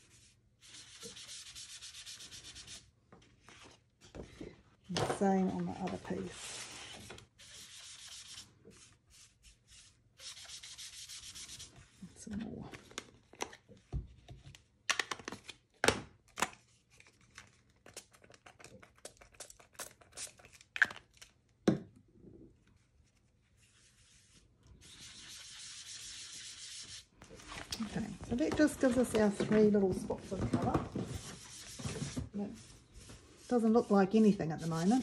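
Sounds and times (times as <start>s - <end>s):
sponge rubbing on cardstock: 6.3s - 11.7s, 23.7s - 27.1s, 31.2s - 35.0s.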